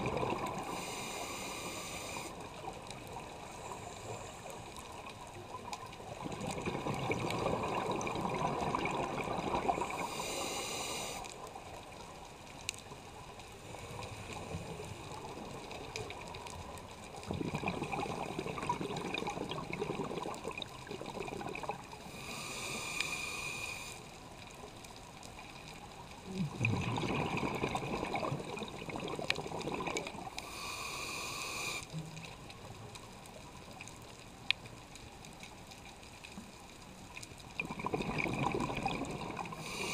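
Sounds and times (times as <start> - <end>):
bubbles rumbling and gurgling: 0.0 - 0.9, 2.4 - 10.2, 11.4 - 22.2, 24.2 - 30.4, 31.9 - 39.9
hissing inhale through regulator: 0.4 - 2.6, 3.4 - 5.0, 9.7 - 11.5, 21.9 - 24.1, 30.2 - 32.0, 39.3 - 39.9.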